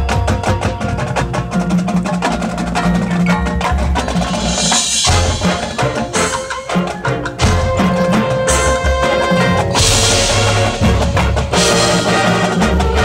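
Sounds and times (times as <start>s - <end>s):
drum and mallet strikes: 0.0s - 13.0s
marching band playing: 0.0s - 13.0s.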